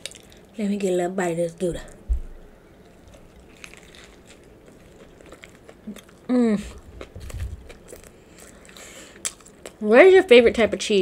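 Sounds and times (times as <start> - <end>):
closed-mouth hum: 1.6 - 9.8
person chewing food: 2.7 - 9.8.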